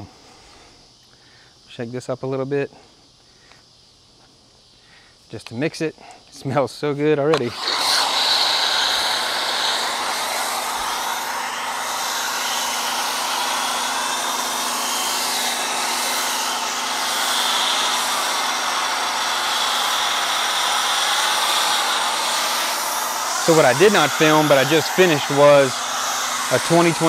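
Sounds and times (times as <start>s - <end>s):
foam spray hissing: 7.4s - 27.0s.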